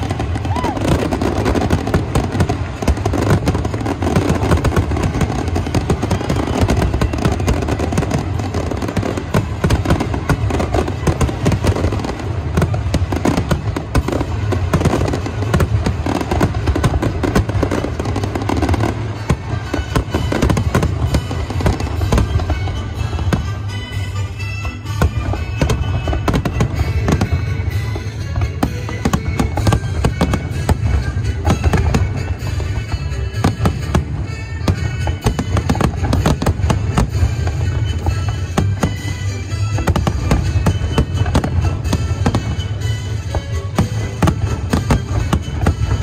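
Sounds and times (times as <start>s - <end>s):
fireworks bursts and crackles: 0.0s - 46.0s.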